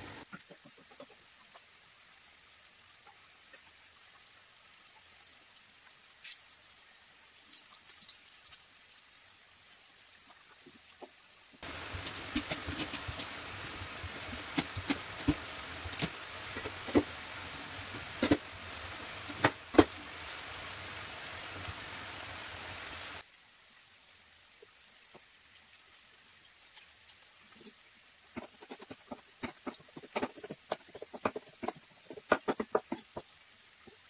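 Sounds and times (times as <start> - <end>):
food sizzling in a frying pan: 11.6 - 23.3.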